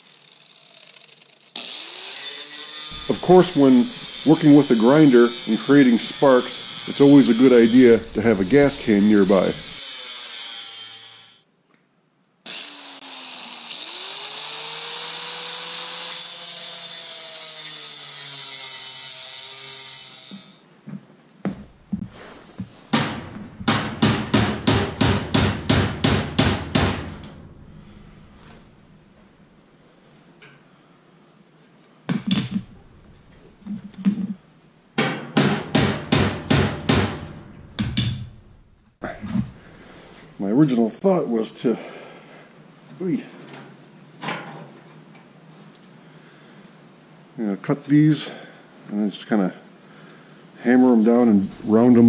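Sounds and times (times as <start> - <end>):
angle grinder cutting steel: 0.0 - 11.4, 12.5 - 20.6
claw hammer striking steel: 22.9 - 28.4.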